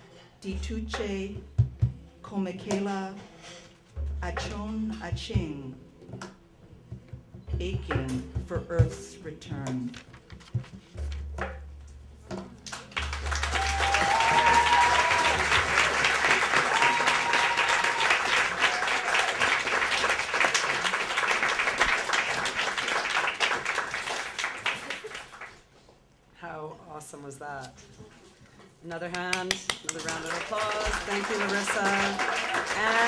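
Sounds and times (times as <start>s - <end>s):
audience applauding: 12.7s - 25.6s, 29.5s - 33.0s
crowd calling out: 13.2s - 19.8s, 31.5s - 32.9s.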